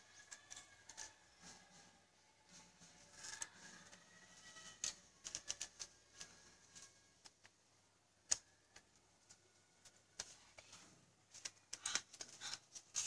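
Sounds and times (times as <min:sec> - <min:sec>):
small clicks and taps: 0:04.7 - 0:07.6.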